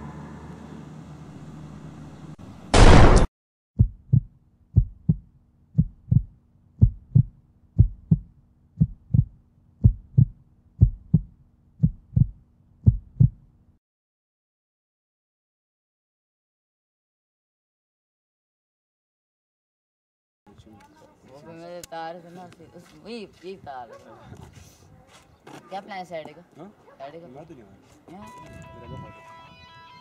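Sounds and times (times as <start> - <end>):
loud gunshot: 2.7 - 3.3
heartbeat sound effect: 3.8 - 13.4.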